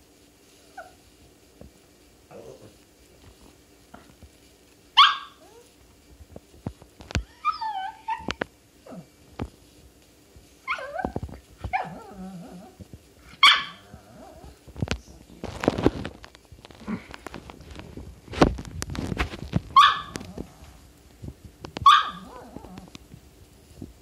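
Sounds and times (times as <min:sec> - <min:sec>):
dog whining: 0:00.7 - 0:01.0, 0:07.2 - 0:09.1, 0:10.6 - 0:12.8, 0:13.4 - 0:14.6, 0:21.8 - 0:22.9
small dog yapping: 0:05.0 - 0:05.7, 0:07.2 - 0:09.1, 0:10.6 - 0:12.6, 0:13.4 - 0:14.5, 0:19.8 - 0:20.4, 0:21.8 - 0:22.9.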